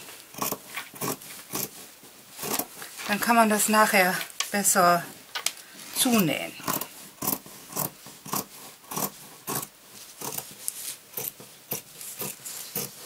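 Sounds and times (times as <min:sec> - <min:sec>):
fabric shears snipping: 0:06.6 - 0:13.0.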